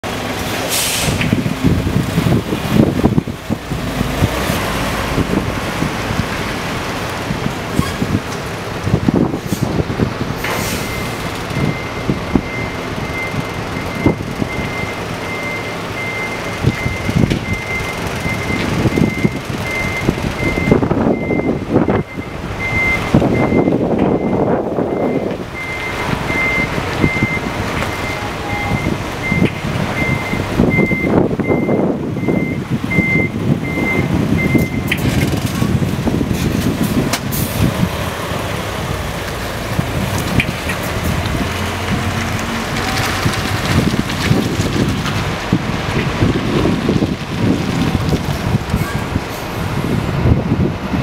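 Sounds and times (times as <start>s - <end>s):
truck diesel engine: 0.0s - 51.0s
truck reversing beeper: 10.5s - 35.4s.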